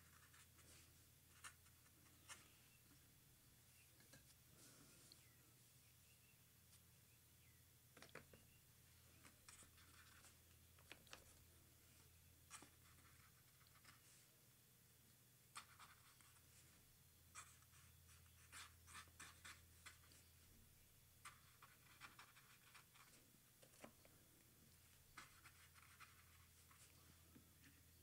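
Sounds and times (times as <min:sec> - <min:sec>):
faint low hum: 0:00.0 - 0:28.0
brush pen scratching on paper: 0:17.3 - 0:20.2, 0:21.2 - 0:23.2, 0:25.1 - 0:27.0.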